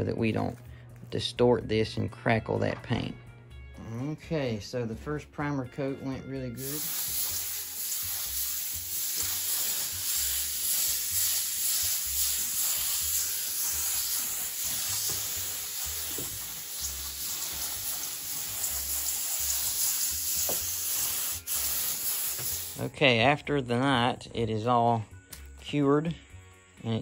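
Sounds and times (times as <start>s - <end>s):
spray gun hissing: 6.6s - 22.8s.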